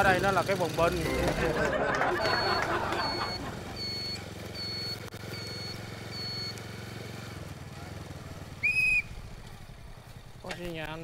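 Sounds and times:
motorbike engine running: 0.0 - 11.0
short high beeps: 2.2 - 6.6
police whistle blast: 8.6 - 9.2.

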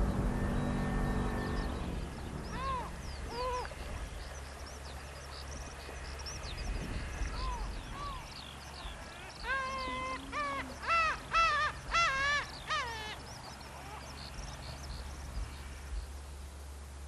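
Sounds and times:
gulls mewing calls: 0.0 - 15.5
small birds chirping: 0.0 - 16.3.

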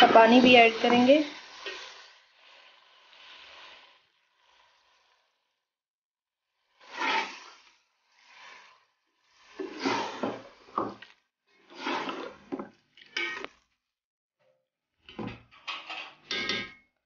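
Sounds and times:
meat sizzling and splashing: 0.0 - 5.5, 6.6 - 13.6
water poured into a pot: 0.1 - 5.6, 6.6 - 13.7.

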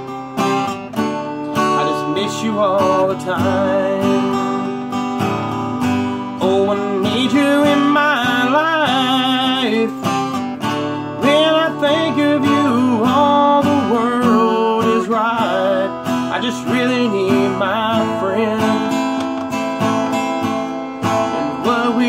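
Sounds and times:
acoustic guitar strumming: 0.0 - 22.0
man singing: 1.6 - 4.8, 6.2 - 10.2, 11.1 - 19.2, 21.0 - 22.0.

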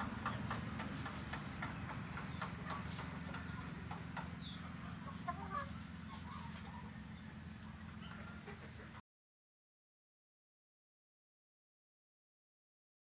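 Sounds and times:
chickens clucking: 0.0 - 9.0
steady low hum: 0.0 - 9.0.

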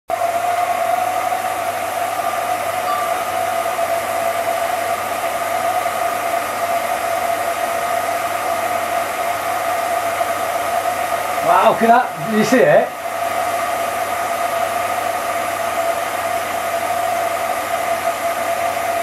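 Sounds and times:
film projector whirring: 0.1 - 19.0.

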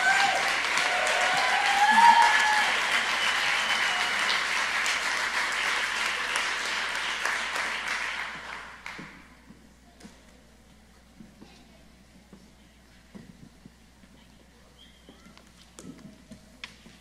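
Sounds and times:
cheering whoop: 0.0 - 4.5
audience applauding: 0.0 - 9.2.

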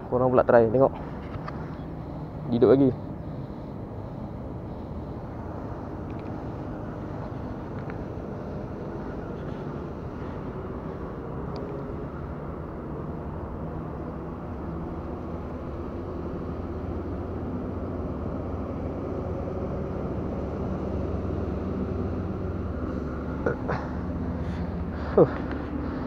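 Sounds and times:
low outdoor rumble: 0.0 - 26.0
faint hum: 0.9 - 19.4.

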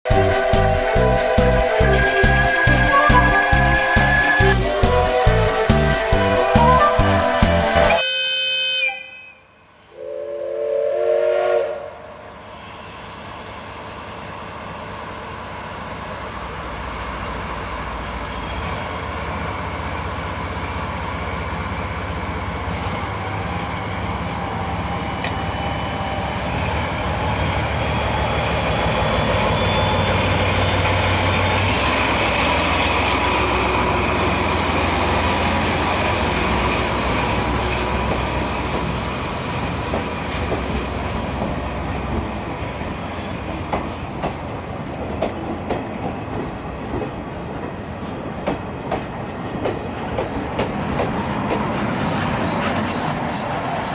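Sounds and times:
locomotive horn: 0.1 - 12.1
diesel locomotive engine: 0.1 - 53.9.

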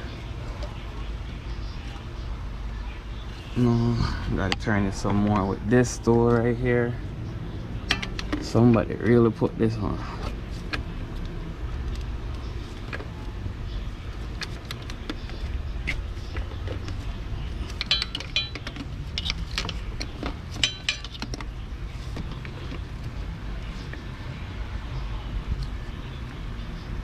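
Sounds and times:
metal tool clicking on oil filter: 17.7 - 21.5.

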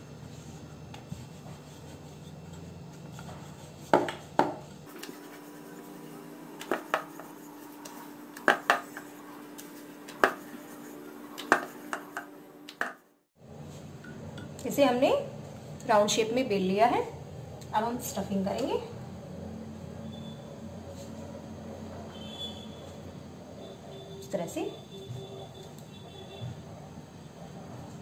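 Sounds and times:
rolling pin knocking on board: 3.9 - 4.6, 6.6 - 7.3, 8.4 - 9.1, 10.1 - 10.5.

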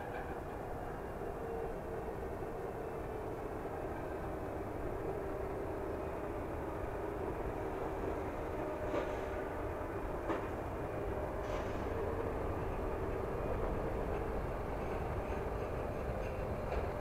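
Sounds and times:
train rumbling: 0.0 - 17.0
wheels clacking over rail joints: 8.8 - 17.0.

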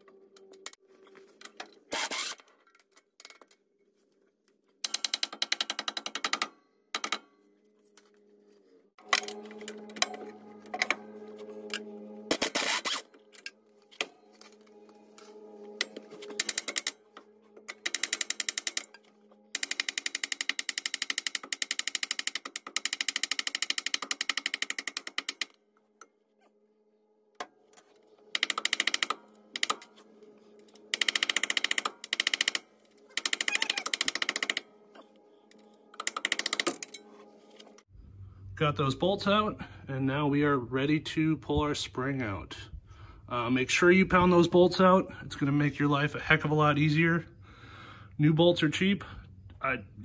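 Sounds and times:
impact wrench hammering: 4.8 - 7.2.

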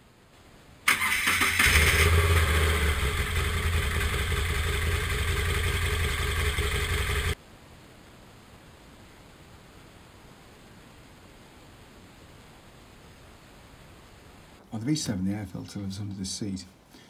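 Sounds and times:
electric starter cranking: 0.9 - 7.4
motorcycle engine idling: 1.7 - 7.4.

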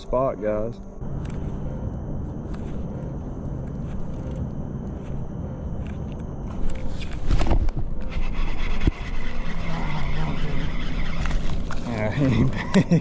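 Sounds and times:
low hum: 0.0 - 13.0
reel spool whirring: 1.1 - 13.0.

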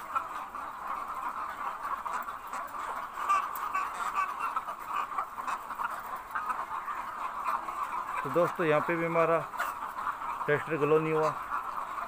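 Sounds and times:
hens clucking: 0.0 - 12.0.

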